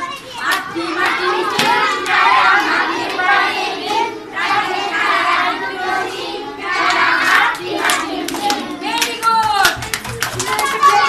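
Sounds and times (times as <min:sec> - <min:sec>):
children singing and shouting: 0:00.0 - 0:11.0
hand clapping: 0:06.8 - 0:11.0.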